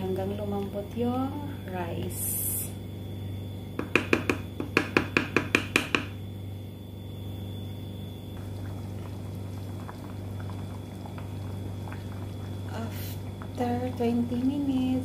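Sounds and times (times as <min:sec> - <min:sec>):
low hum: 0:00.0 - 0:15.0
porridge bubbling in pot: 0:00.0 - 0:15.0
wooden spoon knocking metal pot: 0:03.8 - 0:06.2.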